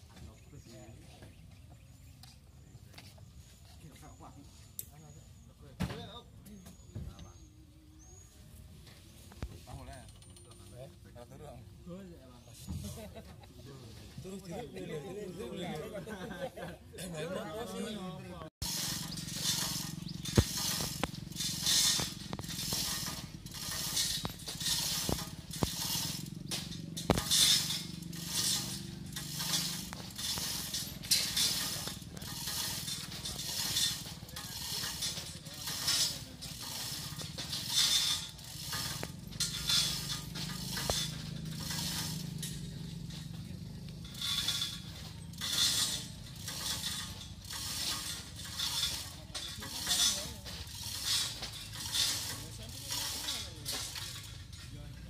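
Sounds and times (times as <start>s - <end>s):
chain hoist ratchet rattle: 9.7s - 10.9s, 18.6s - 55.0s
steady low hum: 18.6s - 54.5s.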